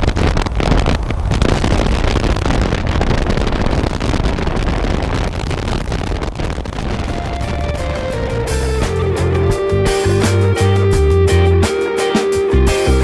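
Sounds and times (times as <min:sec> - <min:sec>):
wind rush on microphone: 0:00.0 - 0:11.3
motorcycle engine: 0:06.8 - 0:11.7.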